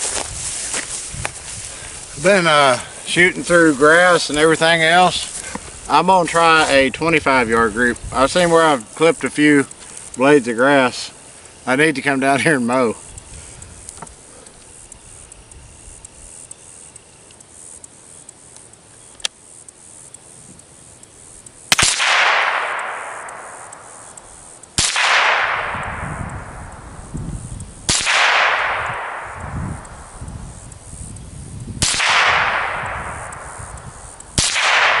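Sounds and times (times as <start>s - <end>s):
rifle shots echoing: 21.7s - 24.1s, 24.8s - 26.6s, 27.9s - 29.5s, 31.8s - 33.6s, 34.3s - 35.0s.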